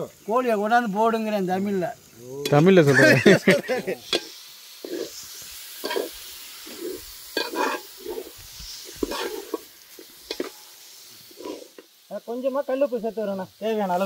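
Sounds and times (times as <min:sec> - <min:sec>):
faint oil sizzle: 0:00.0 - 0:14.0
metal ladle scraping pot: 0:04.1 - 0:05.2, 0:05.8 - 0:10.6, 0:11.3 - 0:11.8.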